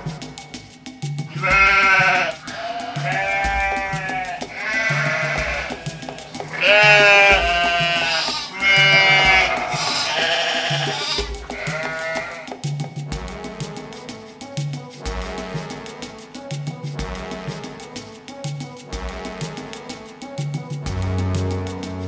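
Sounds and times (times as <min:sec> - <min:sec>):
background music with low beat: 0:00.0 - 0:22.0
animals bleating: 0:01.3 - 0:12.6.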